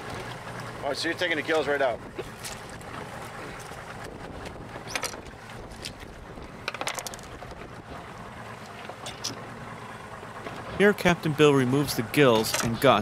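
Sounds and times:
water lapping on boat: 0.0 - 13.0
wind: 0.0 - 13.0
knocks and splashes: 2.1 - 3.8.

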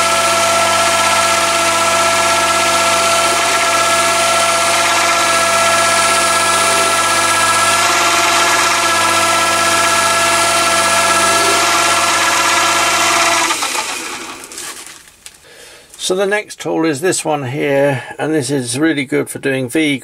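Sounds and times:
lathe running under a cut: 0.0 - 15.0.

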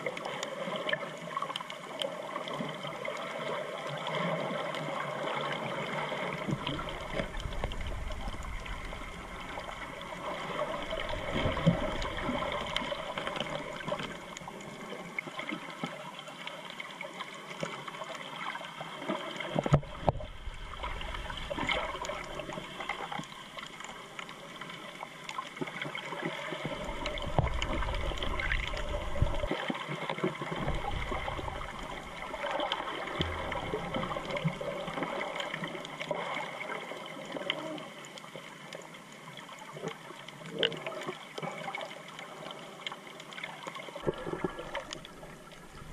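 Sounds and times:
underwater swishing and gurgling: 0.0 - 45.9
low underwater rumbles: 5.8 - 14.9, 19.5 - 24.2, 26.6 - 29.6, 30.2 - 36.0, 43.9 - 45.9.

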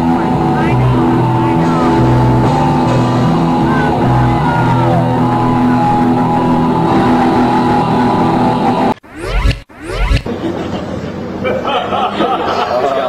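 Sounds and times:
rock band playing: 0.0 - 8.9
repeating bass line: 0.0 - 10.4
drums: 0.0 - 10.8.

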